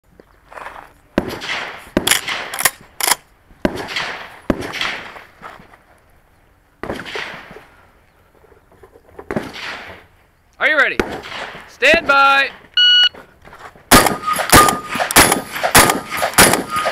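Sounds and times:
gunshots echoing: 1.2 - 5.2, 6.8 - 7.7, 9.3 - 10.1, 10.9 - 12.6, 13.9 - 16.9.

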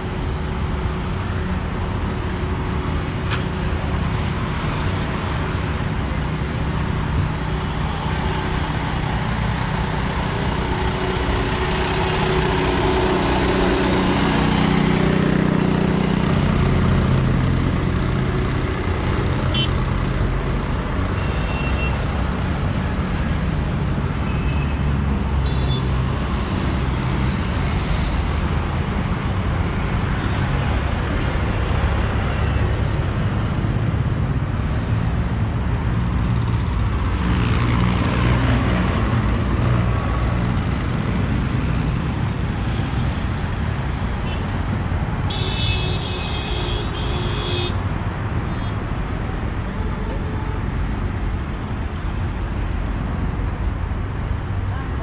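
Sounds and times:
passing traffic noise: 0.0 - 55.0
loud vehicle passing: 2.0 - 55.0.

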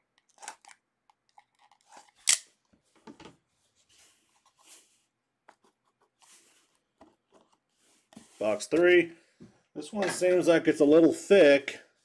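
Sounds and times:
cardboard sliding: 6.0 - 8.7.

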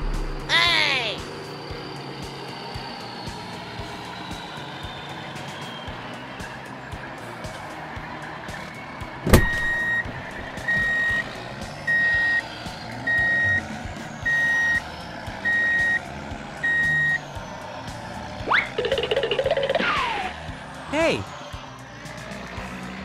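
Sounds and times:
truck reversing beeper: 1.3 - 7.2, 9.3 - 20.4.

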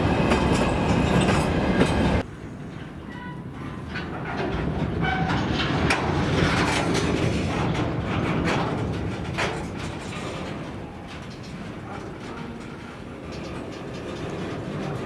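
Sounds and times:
metallic grinding of wheels and brakes: 3.1 - 15.0.

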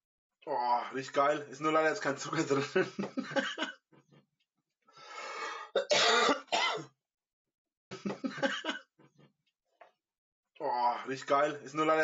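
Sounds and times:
man's voice: 0.8 - 2.9, 10.6 - 12.0
breathing: 4.9 - 5.8
man coughing hard: 5.8 - 6.9.

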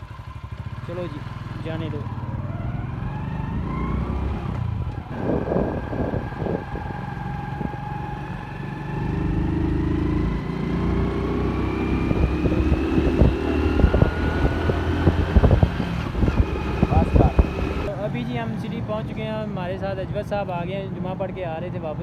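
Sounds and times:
motorcycle engine running: 0.0 - 7.9, 8.9 - 17.9
wind buffeting microphone: 3.8 - 8.2, 10.8 - 17.9.

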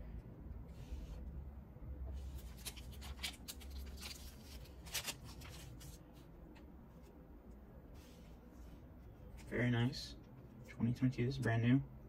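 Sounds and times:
cards on wooden tabletop: 0.0 - 1.3.

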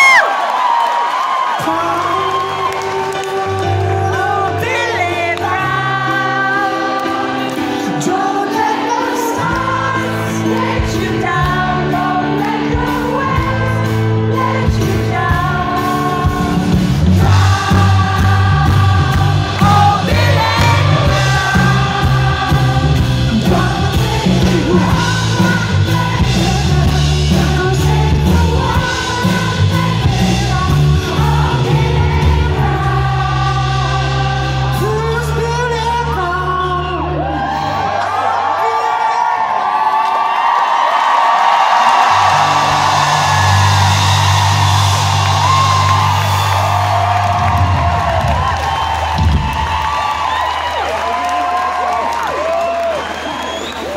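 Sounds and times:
piano: 0.0 - 53.9
pop band playing: 0.0 - 53.9
man singing: 1.6 - 7.1, 17.2 - 31.8, 32.7 - 37.5
bass: 1.6 - 38.6, 40.7 - 53.9.

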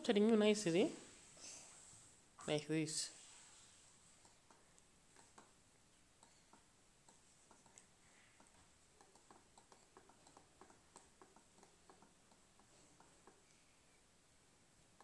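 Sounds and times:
fingers tapping laptop keys: 6.2 - 13.4.

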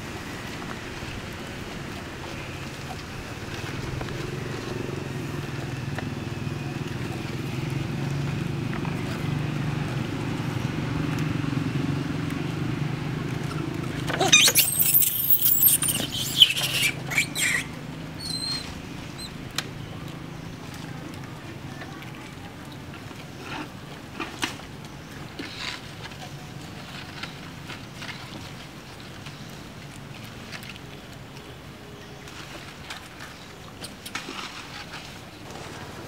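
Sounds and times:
young monkey shrieking: 14.2 - 18.7.

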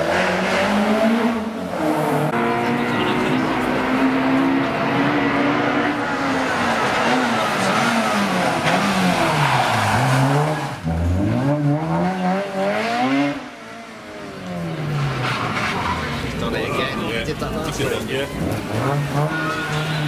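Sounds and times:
car engine braking and revving: 0.0 - 20.0.

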